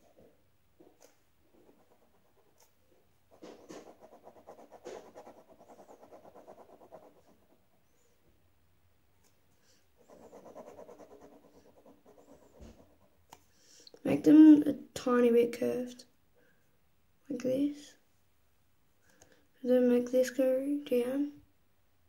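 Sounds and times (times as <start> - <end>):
pen scratching on paper: 1.6 - 2.7, 3.3 - 7.7, 10.0 - 13.5.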